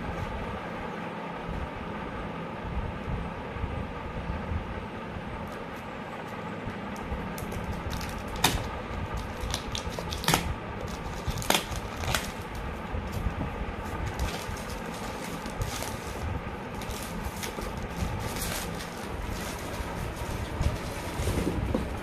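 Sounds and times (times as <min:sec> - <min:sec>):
steady low rumble: 0:00.0 - 0:22.0
sharp snaps of plastic wrap: 0:07.0 - 0:12.6
plastic wrap crinkling and tearing: 0:07.4 - 0:13.2, 0:14.0 - 0:21.3.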